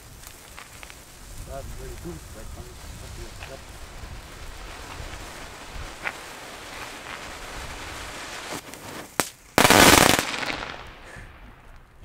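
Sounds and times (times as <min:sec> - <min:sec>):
steady background hiss: 0:00.0 - 0:11.9
loud firecracker bang: 0:03.0 - 0:11.7
distant firecracker pops: 0:03.0 - 0:11.9.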